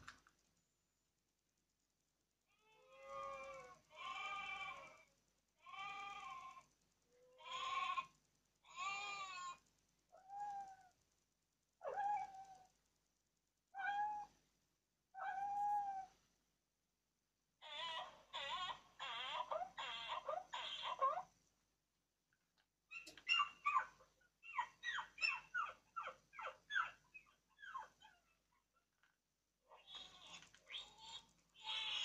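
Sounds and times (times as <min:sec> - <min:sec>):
recorded lamb bleats: 0:02.7 - 0:09.6
recorded kitten meows: 0:07.3 - 0:08.0.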